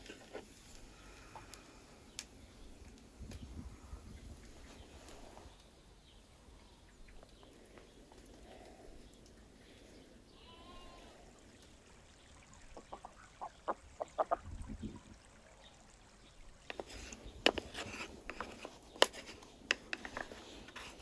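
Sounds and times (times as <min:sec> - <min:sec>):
ducks quacking: 0:12.6 - 0:14.5
sharp clicks and taps: 0:18.3 - 0:20.4.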